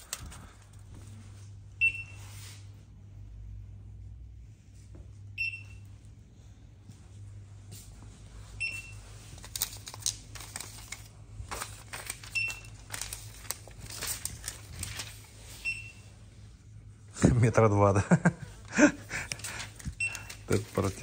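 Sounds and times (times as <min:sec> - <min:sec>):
steady low hum: 0:00.0 - 0:21.0
packaging crinkling: 0:09.4 - 0:15.4, 0:19.1 - 0:21.0.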